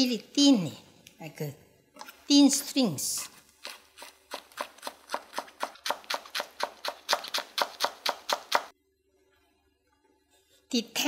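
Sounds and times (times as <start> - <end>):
knife chopping on wooden board: 3.6 - 8.7.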